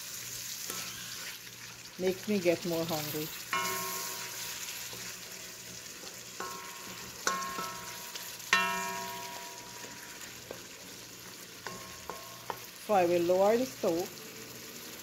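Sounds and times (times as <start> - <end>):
curry sizzling in metal pot: 0.0 - 15.0
spoon clinking metal pot: 3.5 - 5.1, 6.0 - 12.7.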